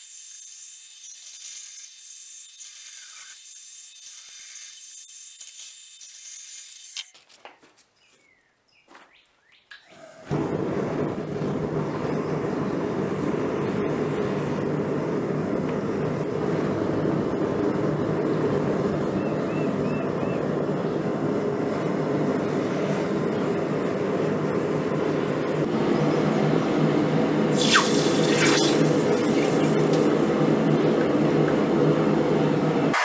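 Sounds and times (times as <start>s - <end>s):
hot metal quenched sizzling: 0.0s - 7.1s, 27.5s - 30.2s
forge burner roaring: 10.3s - 33.0s.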